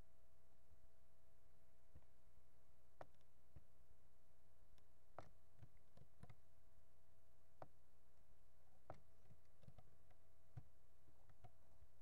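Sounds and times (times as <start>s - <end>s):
electrical hum with thin whine: 0.0s - 12.0s
computer mouse clicks: 5.2s - 6.4s, 8.9s - 11.6s.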